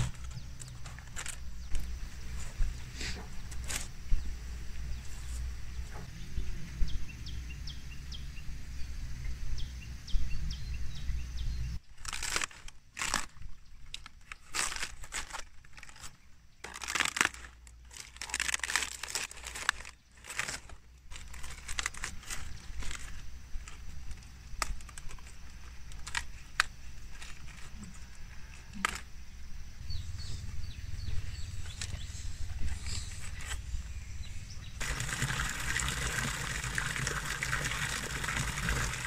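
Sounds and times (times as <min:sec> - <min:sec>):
leaves crunching and tearing: 0:11.9 - 0:29.1
low outdoor rumble: 0:13.2 - 0:39.0.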